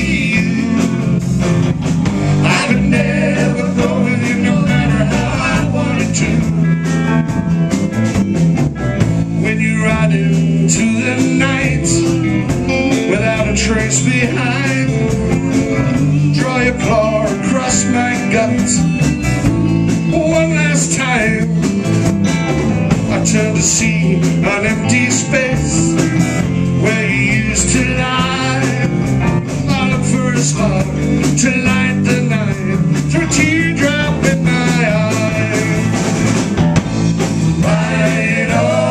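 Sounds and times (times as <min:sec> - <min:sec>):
person singing: 0:00.0 - 0:01.2, 0:02.4 - 0:06.6
drums: 0:00.0 - 0:38.9
electric bass: 0:00.0 - 0:38.9
electric guitars: 0:00.0 - 0:38.9.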